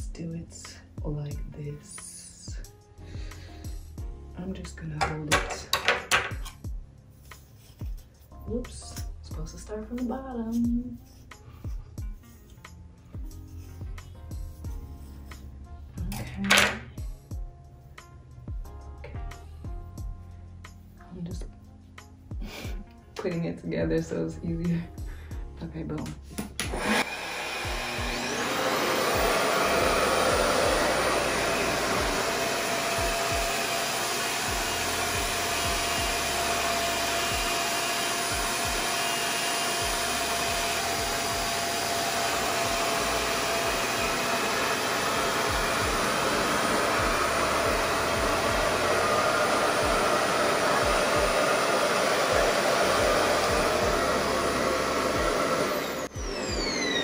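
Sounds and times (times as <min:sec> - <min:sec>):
hair dryer air rush: 0:22.4 - 0:22.8, 0:26.6 - 0:57.0.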